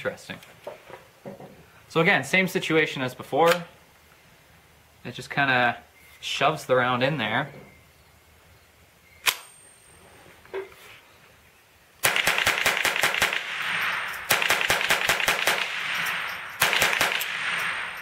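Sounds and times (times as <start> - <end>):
metallic click of rifle action: 3.5 - 3.7, 9.2 - 9.5
rifle shots with echo: 12.0 - 18.0.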